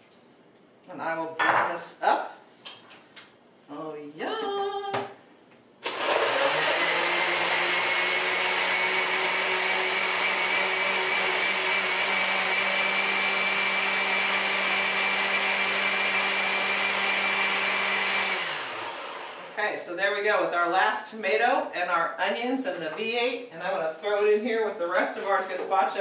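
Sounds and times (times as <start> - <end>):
blender whining: 5.8 - 19.6.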